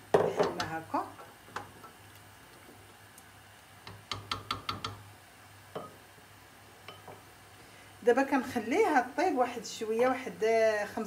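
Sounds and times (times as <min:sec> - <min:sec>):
wooden spoon tapping metal pot: 0:00.1 - 0:00.8, 0:03.8 - 0:05.1, 0:05.7 - 0:06.0, 0:06.9 - 0:07.2.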